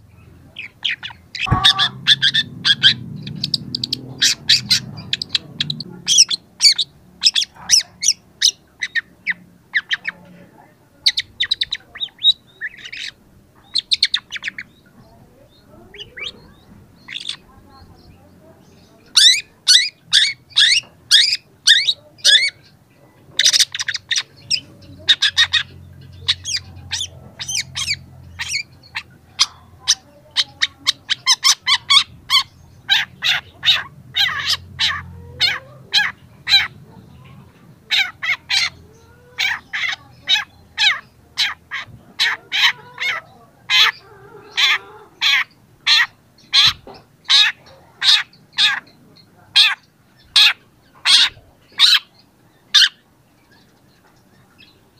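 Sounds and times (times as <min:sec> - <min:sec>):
shrike singing harsh notes: 0:01.4 - 0:05.4.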